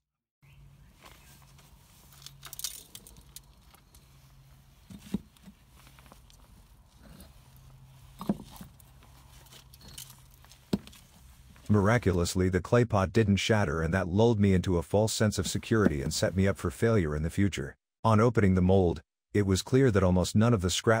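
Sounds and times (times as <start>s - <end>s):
faint rustling: 0.8s - 11.7s.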